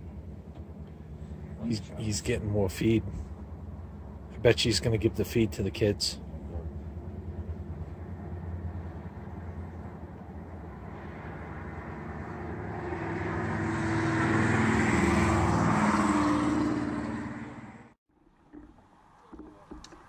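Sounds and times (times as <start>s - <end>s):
motor vehicle passing by: 6.2s - 18.0s.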